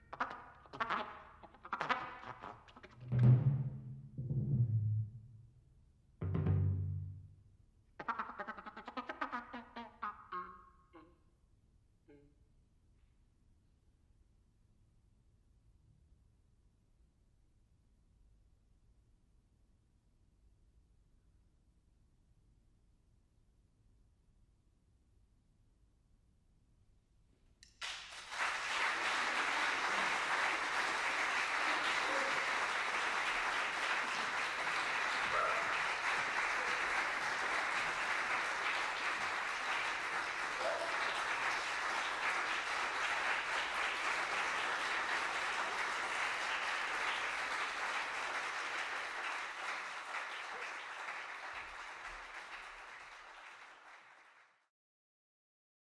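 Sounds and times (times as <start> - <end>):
audience applauding: 27.8 - 54.6.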